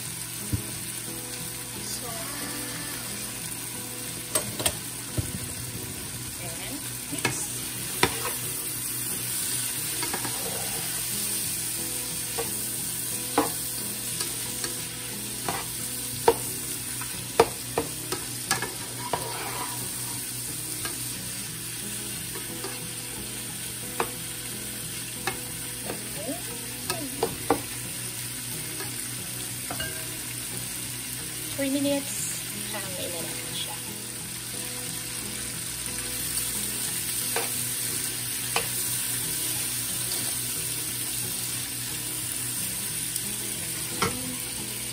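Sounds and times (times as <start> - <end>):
meat sizzling in a pan: 0.0 - 44.9
spatula knocking and scraping pan: 7.2 - 8.4.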